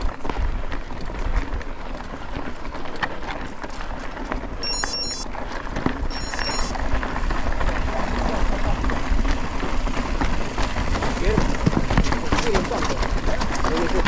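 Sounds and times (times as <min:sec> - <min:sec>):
wind rumbling on microphone: 0:00.0 - 0:04.6, 0:05.3 - 0:14.0
bike tyre noise on dirt: 0:00.0 - 0:14.0
high chirping: 0:04.6 - 0:05.2, 0:06.1 - 0:06.7
bike knocks and rattles: 0:06.8 - 0:14.0.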